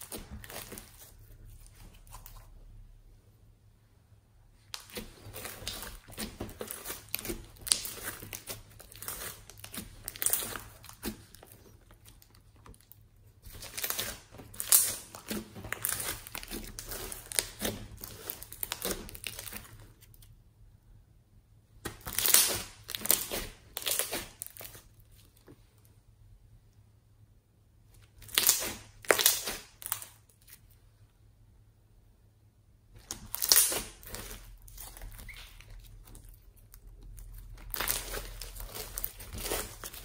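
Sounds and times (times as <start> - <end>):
slime crackling and popping: 4.7 - 20.3, 21.8 - 24.9, 28.1 - 30.3, 33.0 - 40.0.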